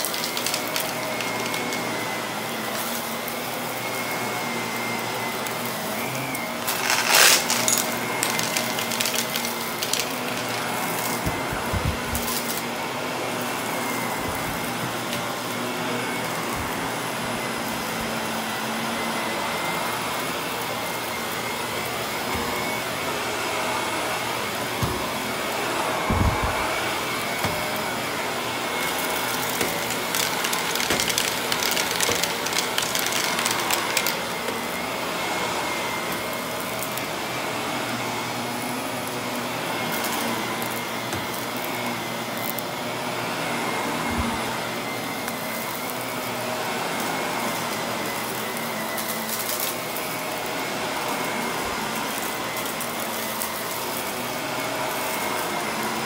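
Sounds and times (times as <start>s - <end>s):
vacuum cleaner running: 0.0s - 56.0s
low thumps: 26.0s - 27.0s.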